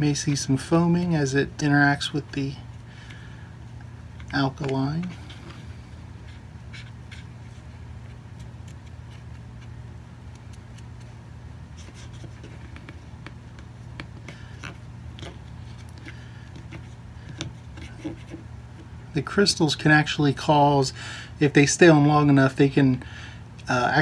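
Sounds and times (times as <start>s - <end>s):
steady low hum: 0.0s - 24.0s
cotton swab scratching: 4.2s - 18.9s.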